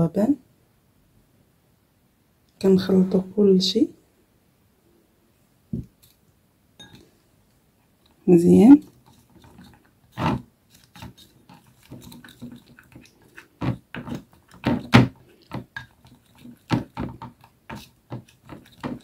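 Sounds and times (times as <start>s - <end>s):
utensil scraping glass bowl: 8.4s - 19.0s.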